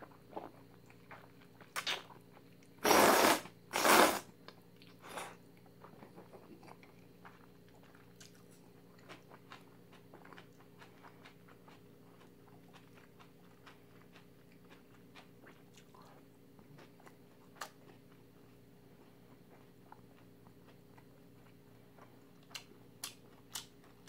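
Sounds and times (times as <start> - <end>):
low steady hum: 0.0 - 24.0
person chewing noodles: 0.0 - 24.0.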